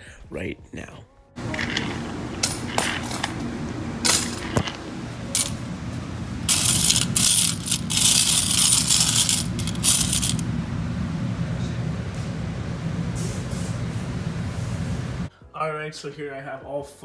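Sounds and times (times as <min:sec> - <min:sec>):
coins jingling in metal tray: 0:01.4 - 0:05.7, 0:06.5 - 0:10.4
steady low hum: 0:01.4 - 0:15.3.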